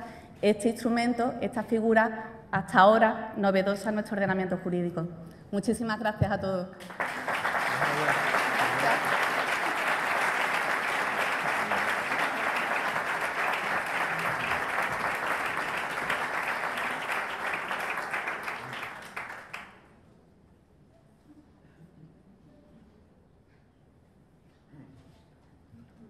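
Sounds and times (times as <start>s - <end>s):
audience applauding: 6.8s - 19.8s.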